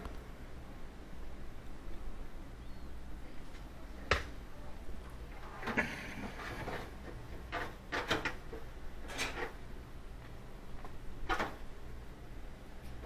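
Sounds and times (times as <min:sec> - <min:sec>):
low steady hum: 0:00.0 - 0:13.0
knocks and scrapes of parts: 0:05.6 - 0:09.6.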